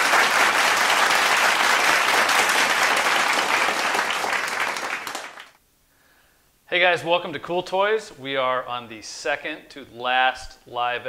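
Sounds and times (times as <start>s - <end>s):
many hands clapping: 0.0s - 5.6s.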